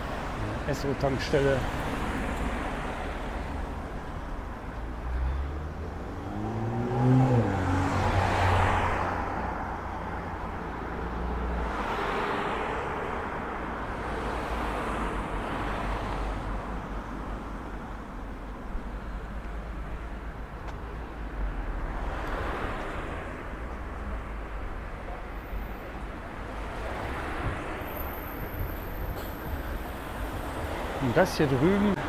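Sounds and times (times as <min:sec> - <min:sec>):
low road rumble: 0:00.0 - 0:32.0
vehicles passing: 0:00.0 - 0:32.0
car passing by: 0:05.0 - 0:10.3.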